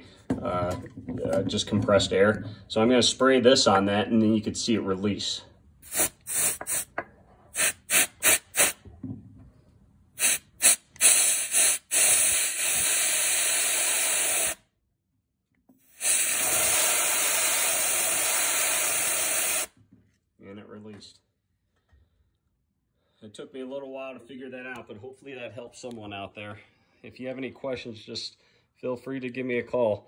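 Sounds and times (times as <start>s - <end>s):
canned air spraying: 5.8s - 8.8s, 10.2s - 14.6s, 15.8s - 19.7s.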